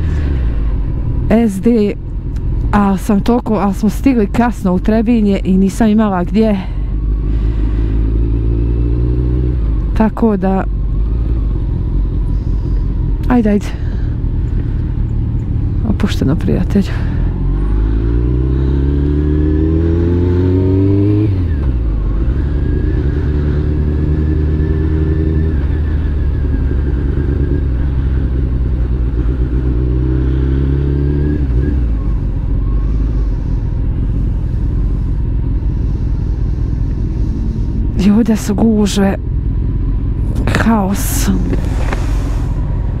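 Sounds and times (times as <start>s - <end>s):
motorcycle engine accelerating: 3.5s - 43.0s
riding wind noise: 20.7s - 43.0s.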